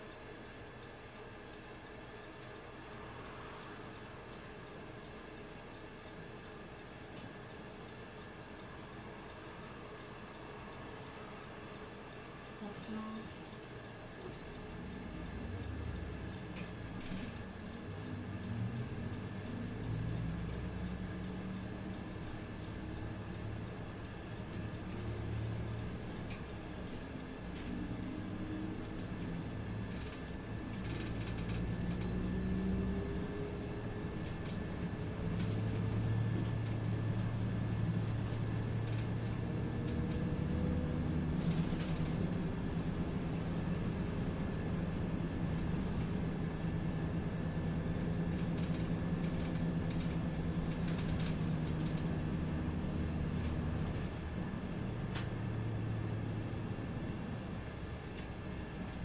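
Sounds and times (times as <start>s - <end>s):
bus engine accelerating: 6.2s - 59.0s
light clicks and rattles: 11.4s - 54.3s.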